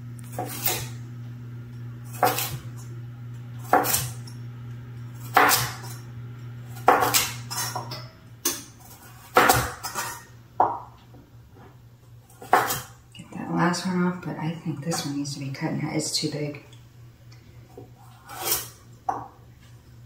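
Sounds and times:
steady low hum: 0:00.0 - 0:20.0
knife chopping on cutting board: 0:00.3 - 0:00.9, 0:02.1 - 0:02.6, 0:03.6 - 0:04.2, 0:05.2 - 0:05.9, 0:06.8 - 0:10.0, 0:12.4 - 0:12.9.

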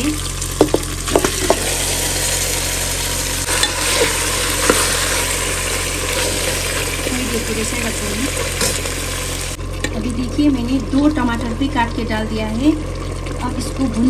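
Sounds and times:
meat sizzling in hot oil: 0:00.0 - 0:14.0
spatula knocking against pot: 0:00.6 - 0:01.6
spatula stirring and scraping: 0:03.5 - 0:06.9.

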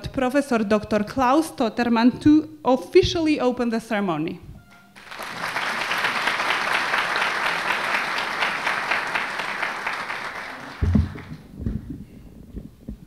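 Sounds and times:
audience applauding: 0:05.0 - 0:11.6
low thumps: 0:10.8 - 0:13.0.

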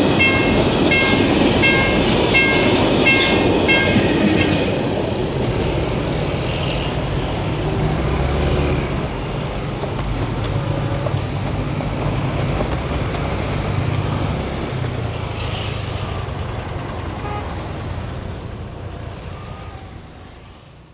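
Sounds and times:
vehicle engines pulling away: 0:07.2 - 0:20.1.

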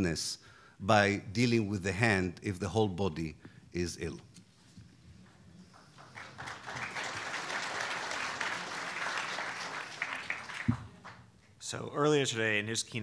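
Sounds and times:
audience applauding: 0:05.7 - 0:11.3.

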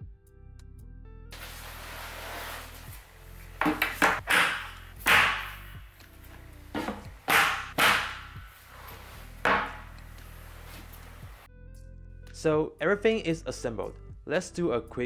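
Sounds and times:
cabinet doors knocking shut: 0:06.8 - 0:08.5, 0:09.4 - 0:09.9.

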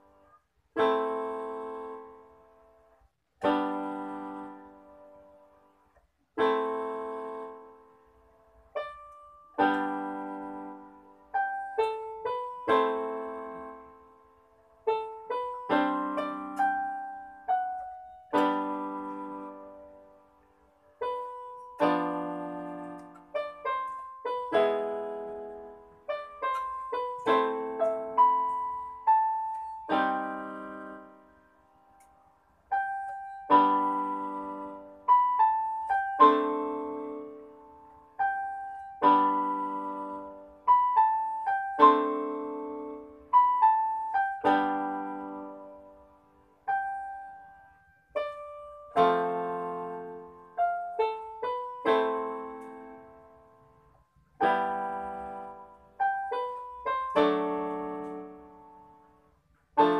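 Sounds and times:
solo piano music: 0:00.0 - 0:59.9.

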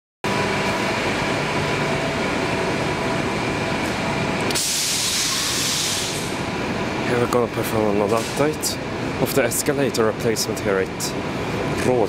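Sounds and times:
mechanical running rumble and hum: 0:00.2 - 0:12.0
loud hiss: 0:04.5 - 0:06.4.

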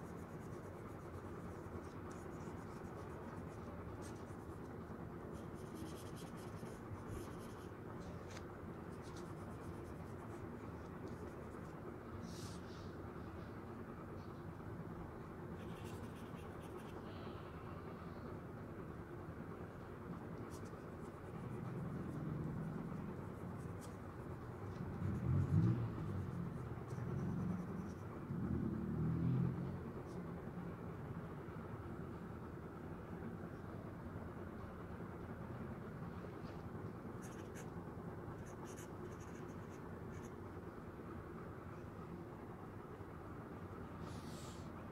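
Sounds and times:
pencil scratching on paper: 0:00.0 - 0:11.8, 0:37.2 - 0:37.7, 0:38.4 - 0:40.4.

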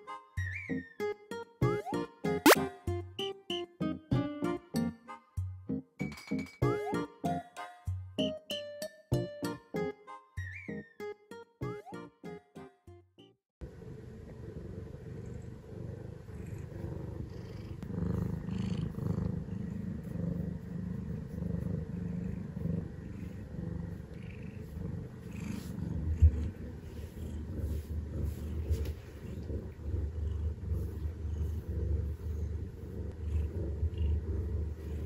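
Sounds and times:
cat purring: 0:13.6 - 0:35.0.

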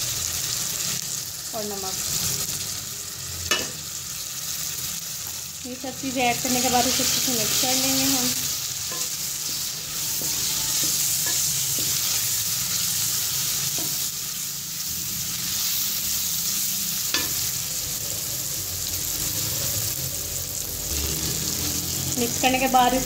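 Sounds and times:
food sizzling in hot oil: 0:00.0 - 0:23.0.

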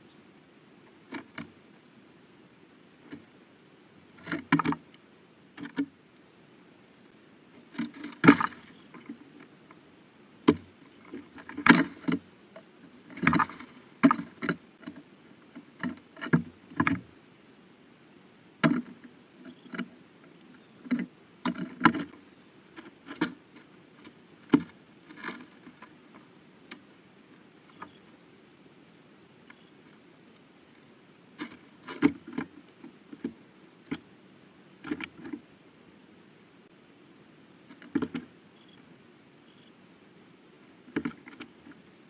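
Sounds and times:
birds pecking on wooden feeder: 0:10.4 - 0:15.0.

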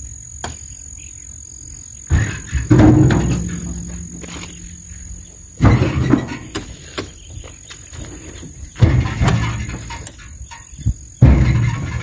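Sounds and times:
insect buzz: 0:00.0 - 0:06.0
heavy thuds in truck bed: 0:02.1 - 0:06.7, 0:08.7 - 0:10.6, 0:11.2 - 0:12.0.

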